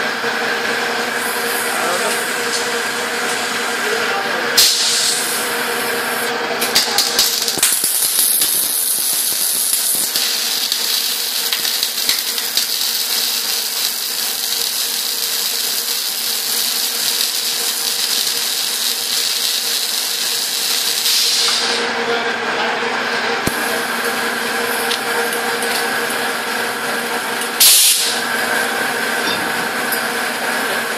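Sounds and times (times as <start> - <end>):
welding arcs crackling: 4.6 - 21.8.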